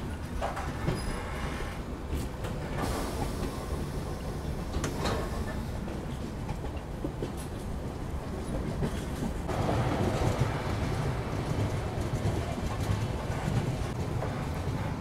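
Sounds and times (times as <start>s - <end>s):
train wheels rumbling on track: 0.0s - 15.0s.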